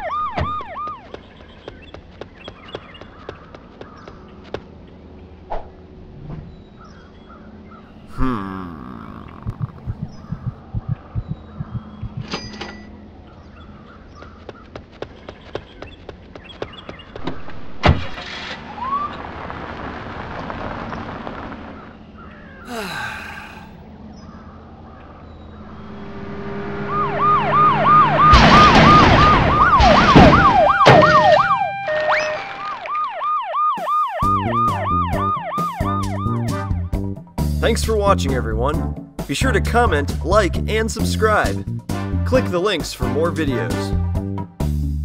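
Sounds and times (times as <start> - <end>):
police sirens: 0.0 - 1.2, 25.6 - 36.8
cars crashing: 26.4 - 31.3
music: 33.9 - 45.0.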